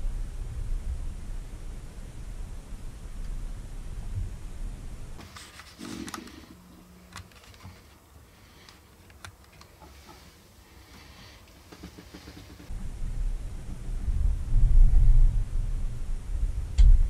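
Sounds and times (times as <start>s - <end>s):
camera handling rumble: 5.2s - 8.0s.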